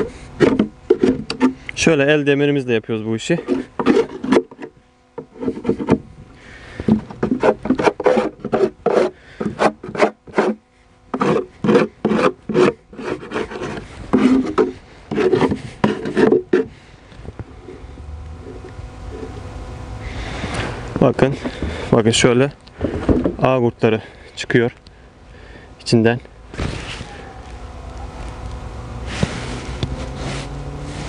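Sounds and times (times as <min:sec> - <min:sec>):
metal tool scraping wood: 0:00.0 - 0:01.7, 0:03.2 - 0:06.1, 0:06.8 - 0:16.8.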